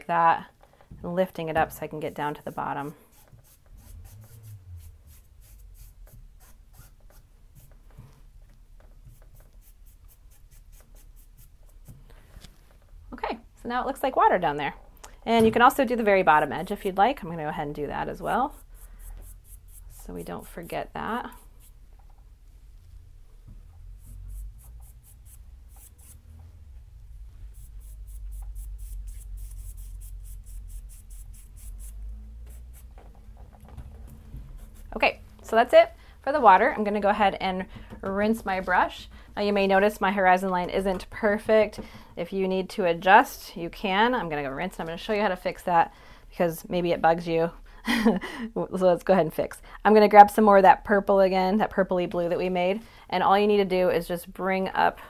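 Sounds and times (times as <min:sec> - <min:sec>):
paintbrush strokes on canvas: 0:02.0 - 0:08.3, 0:18.2 - 0:21.8, 0:23.9 - 0:26.4, 0:27.1 - 0:33.0
low rumble: 0:03.7 - 0:05.5.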